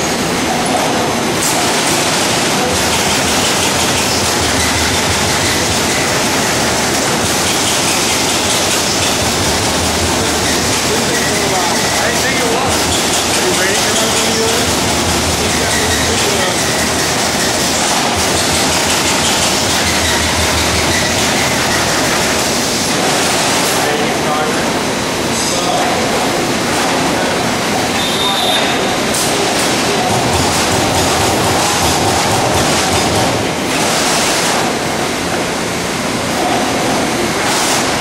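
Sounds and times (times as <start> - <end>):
punch press punching sheet steel: 1.4 - 11.3, 12.6 - 23.8, 29.3 - 34.8.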